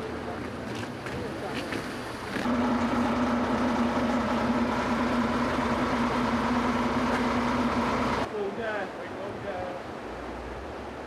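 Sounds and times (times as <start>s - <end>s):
engine running with whine: 2.4s - 8.3s.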